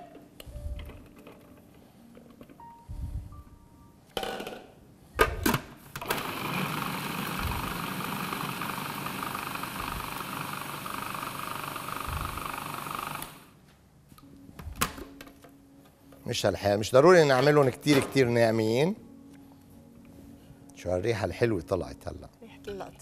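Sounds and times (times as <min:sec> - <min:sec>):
food processor chopping: 0:06.0 - 0:13.3.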